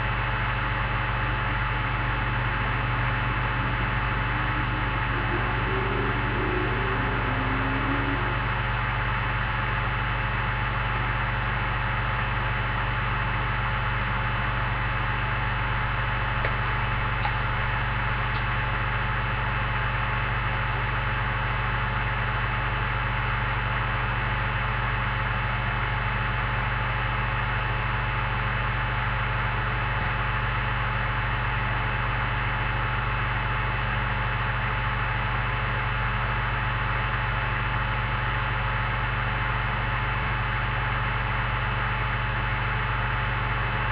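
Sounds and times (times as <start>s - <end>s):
electrical hum with hiss: 0.0s - 43.9s.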